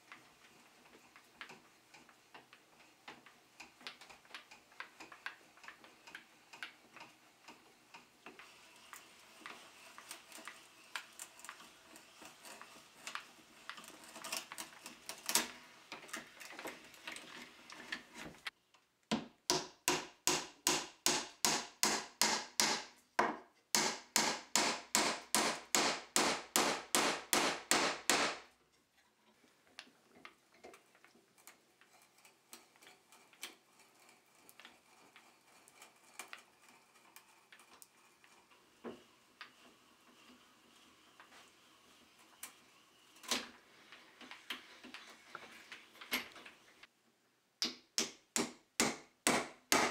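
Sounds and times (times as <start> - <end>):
hand tool striking wood: 19.1 - 28.5, 47.6 - 49.9.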